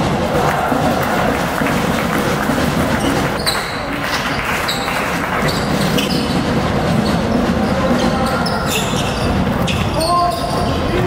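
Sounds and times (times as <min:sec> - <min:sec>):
hall background noise: 0:00.0 - 0:11.0
sneakers squeaking on floor: 0:02.9 - 0:11.0.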